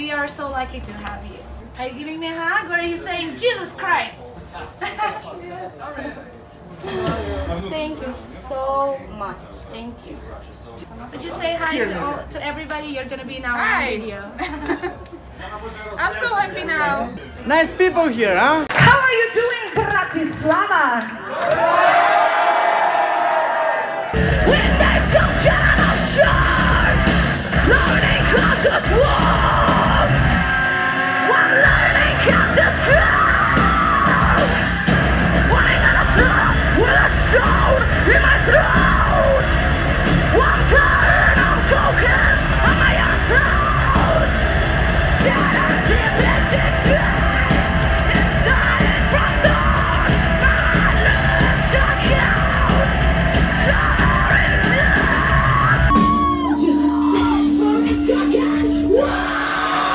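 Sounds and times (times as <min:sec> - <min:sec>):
heavy metal band playing: 0:24.1 - 0:59.9
screamed vocals: 0:24.4 - 0:30.6, 0:31.2 - 0:59.9.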